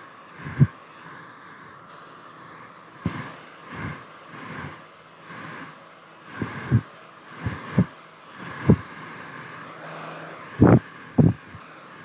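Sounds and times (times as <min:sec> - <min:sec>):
air puffs buffeting microphone: 0:00.4 - 0:00.8, 0:02.9 - 0:05.7, 0:06.3 - 0:12.0
hair dryer running: 0:07.4 - 0:12.0.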